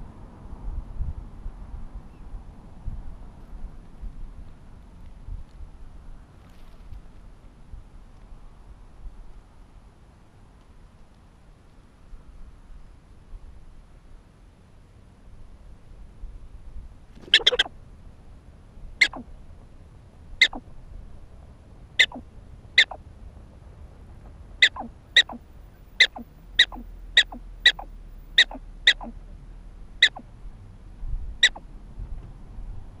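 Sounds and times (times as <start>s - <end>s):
prairie dog barking: 17.3s - 17.7s, 19.0s - 19.3s, 20.4s - 20.6s, 22.0s - 22.2s, 22.8s - 23.0s, 24.6s - 25.4s, 26.0s - 29.2s, 30.0s - 30.3s, 31.4s - 31.6s.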